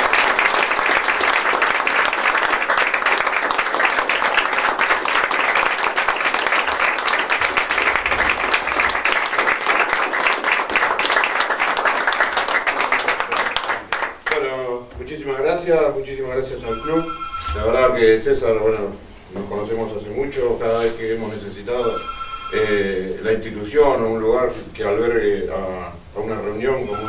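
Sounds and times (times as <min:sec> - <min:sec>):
crowd applauding: 0:00.0 - 0:14.5.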